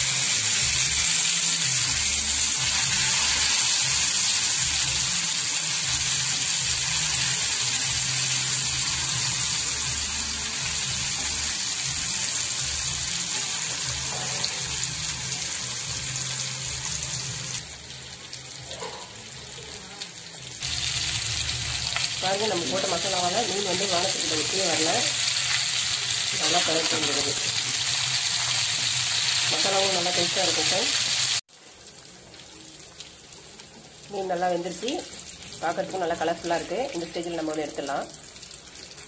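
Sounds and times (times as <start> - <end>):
fish sizzling in oil: 0.0 - 39.0.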